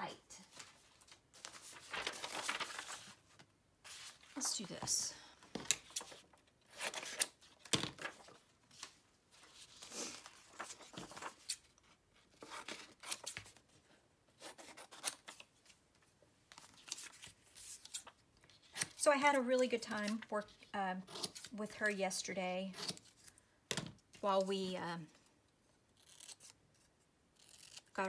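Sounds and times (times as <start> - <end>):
scissors snipping paper: 27.4 - 28.0.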